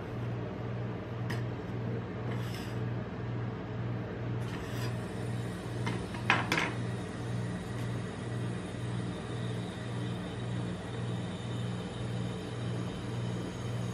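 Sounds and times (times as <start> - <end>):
low pulsing hum: 0.0 - 13.9.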